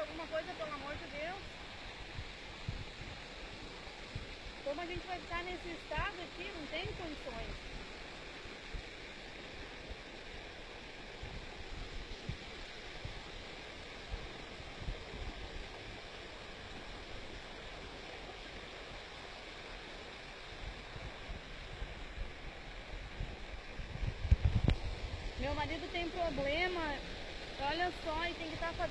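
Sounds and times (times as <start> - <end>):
water rushing: 0.0 - 28.9.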